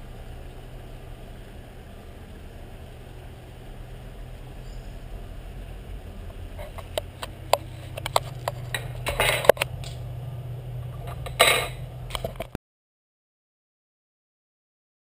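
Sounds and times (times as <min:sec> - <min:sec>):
steady low hum: 0:00.0 - 0:12.6
objects clinking on worktop: 0:08.0 - 0:09.6, 0:11.0 - 0:12.4.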